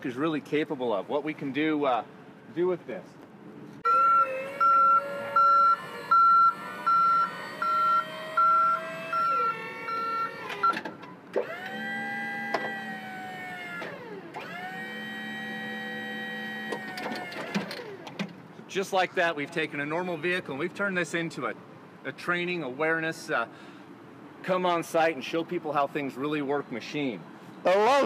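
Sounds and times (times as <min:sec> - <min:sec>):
motor whine: 0:03.8 - 0:10.7, 0:11.4 - 0:18.1
warning beeper: 0:03.8 - 0:10.8.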